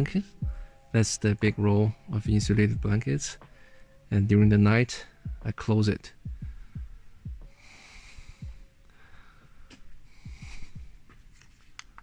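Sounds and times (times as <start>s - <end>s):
person breathing close: 3.4s - 4.1s, 6.5s - 11.1s
soft footstep thumps: 9.6s - 11.6s.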